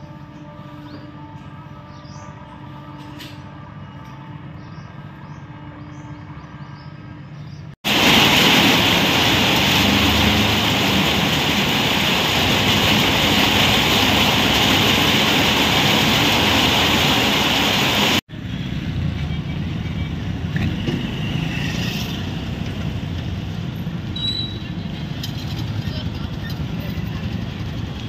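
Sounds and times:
street noise: 0.0 - 28.0
heavy rain pouring on street: 7.8 - 18.2.

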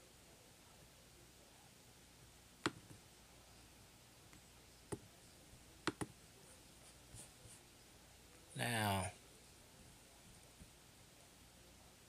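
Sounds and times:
computer mouse clicking: 2.6 - 3.0, 5.8 - 6.2.

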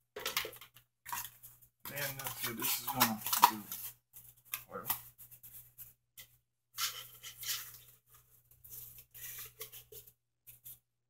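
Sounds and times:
cardboard rustling and scraping: 6.8 - 10.8.

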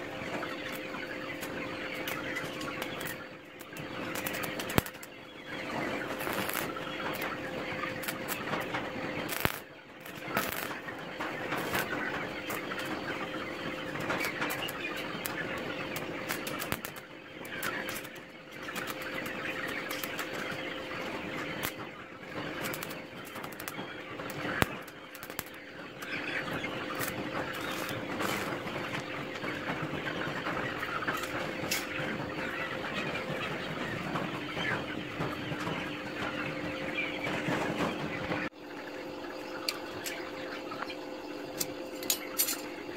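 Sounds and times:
faint steady hum: 0.0 - 42.9
arc welding crackle and pops: 0.7 - 5.1, 6.1 - 10.9, 11.5 - 12.9, 14.0 - 20.4, 21.5 - 21.8, 22.5 - 26.1, 26.9 - 28.6.

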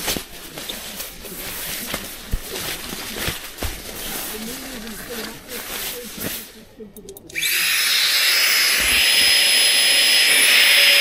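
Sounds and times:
electric air pump whirring: 7.4 - 11.0.

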